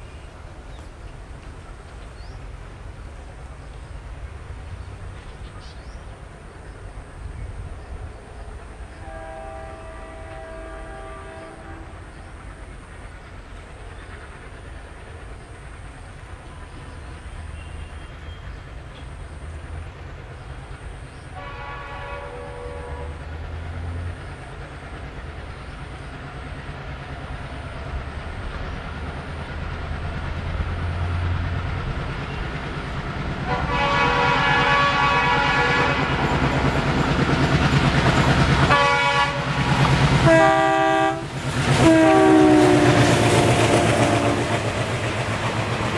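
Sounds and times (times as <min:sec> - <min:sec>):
diesel locomotive engine rumble: 0:00.0 - 0:45.9
train horn: 0:08.9 - 0:12.2, 0:21.3 - 0:23.4, 0:33.4 - 0:36.4, 0:38.6 - 0:44.8.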